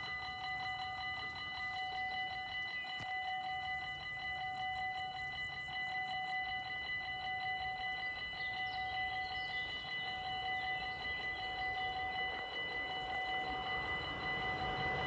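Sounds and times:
level crossing warning bell: 0.0s - 15.0s.

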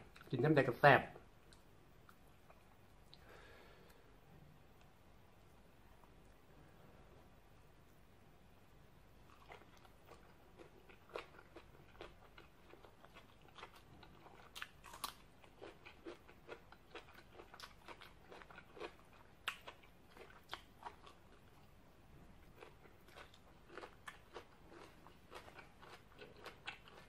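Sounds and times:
person chewing crunchy vegetables: 9.3s - 21.8s, 22.4s - 27.0s.

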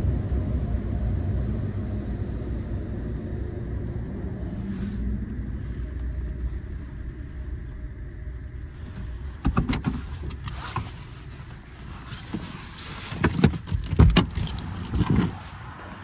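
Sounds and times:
car rumbling: 0.0s - 16.0s
sharp knocks and clunks: 9.4s - 10.4s.

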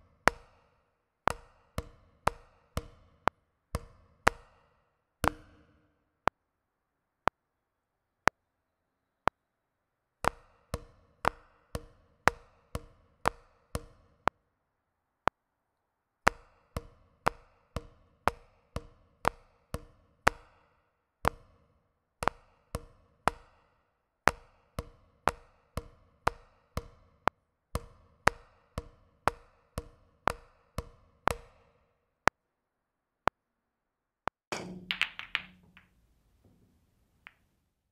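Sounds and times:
drumsticks tapping a practice pad: 5.2s - 5.8s, 34.5s - 36.6s.

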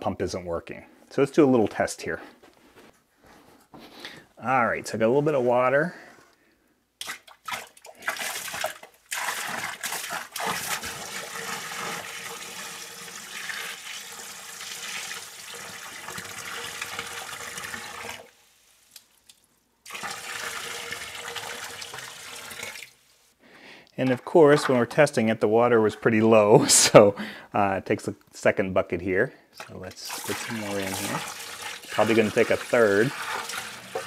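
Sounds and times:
water pouring into pit: 7.5s - 22.9s, 30.0s - 34.0s.

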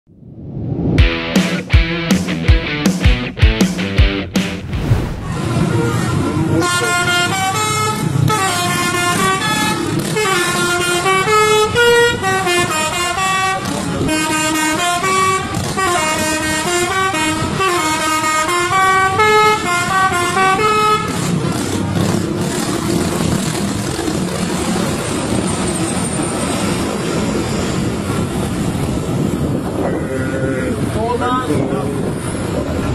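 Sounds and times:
bus engine: 0.1s - 32.9s
road noise: 0.1s - 32.9s
multi-tone air horn tune: 6.5s - 21.4s.

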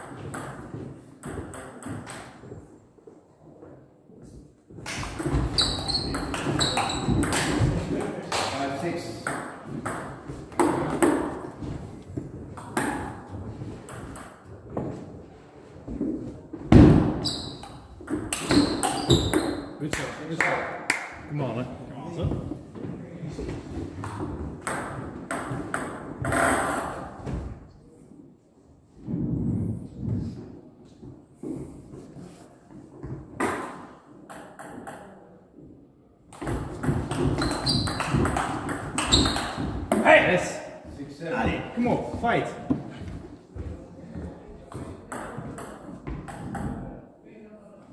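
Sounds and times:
table tennis ball hits: 4.8s - 8.5s, 16.7s - 21.1s, 36.3s - 40.1s.

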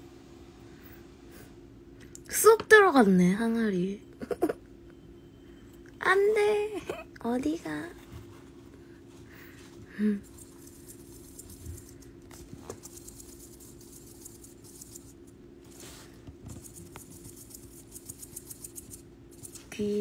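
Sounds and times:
steady low hum: 0.0s - 20.0s
hamster rustling in bedding: 10.4s - 17.4s.

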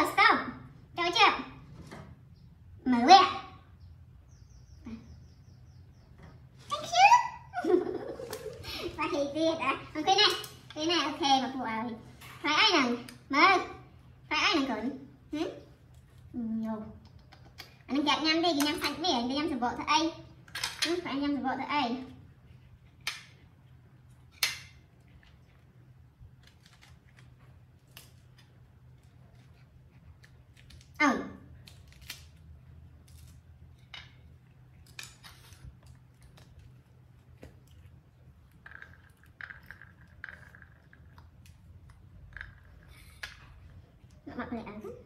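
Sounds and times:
fruit being peeled by hand: 22.0s - 39.5s.

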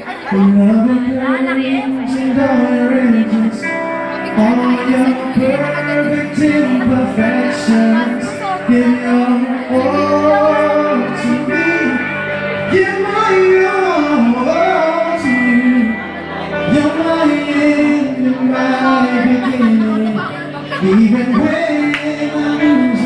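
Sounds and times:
bass: 0.0s - 23.0s
electric guitar: 0.0s - 23.0s
men singing into microphones: 0.1s - 23.0s.

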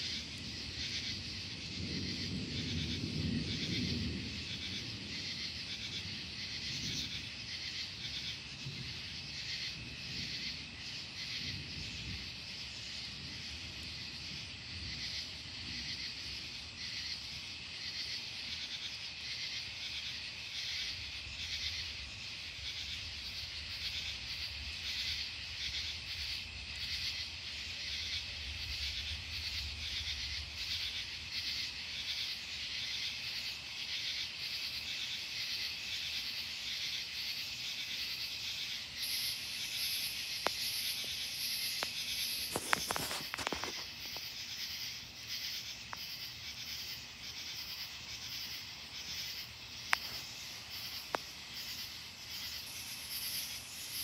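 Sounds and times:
distant thunder rumble: 0.0s - 17.2s
night insects chirping: 0.0s - 54.0s.

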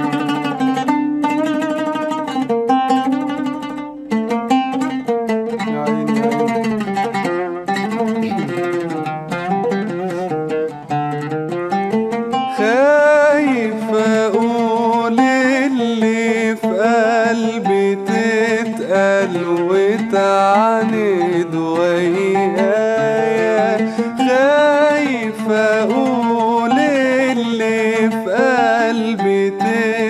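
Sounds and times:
oud: 0.0s - 30.0s
man singing: 5.6s - 7.3s, 7.9s - 10.5s, 12.5s - 30.0s.

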